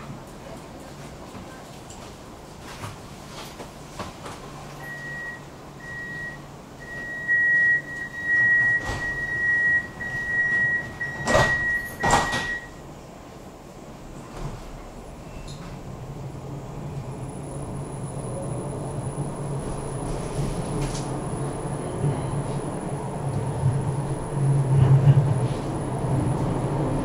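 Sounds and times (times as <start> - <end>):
door warning beeps: 4.8 - 12.8
doors sliding shut with knocks: 8.6 - 9.4, 10.5 - 12.7.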